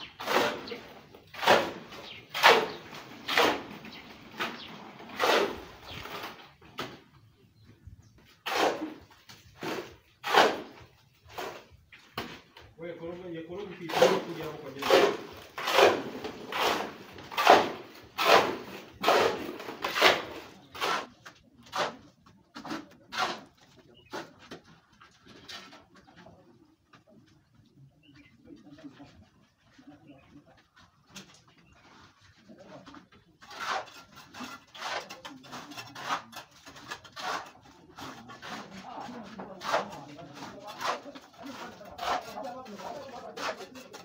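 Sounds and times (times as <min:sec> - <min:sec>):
hand tool scraping wet concrete: 0:00.0 - 0:07.0, 0:08.3 - 0:11.8, 0:13.6 - 0:24.4, 0:32.5 - 0:44.0.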